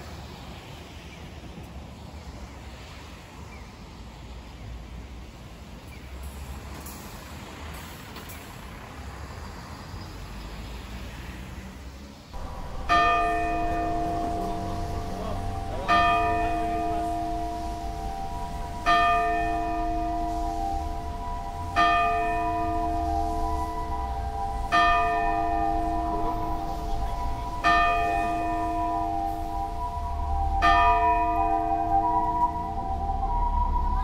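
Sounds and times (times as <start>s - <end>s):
clock tower bell striking: 12.4s - 34.0s.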